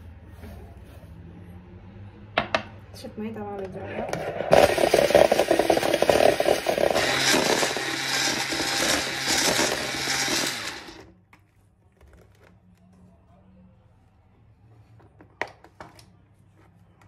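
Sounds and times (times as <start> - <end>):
electric hand mixer whisking: 3.8 - 11.1.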